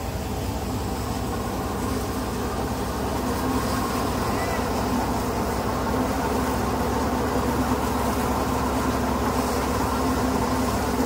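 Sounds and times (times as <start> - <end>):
thresher machine running: 0.0 - 11.0.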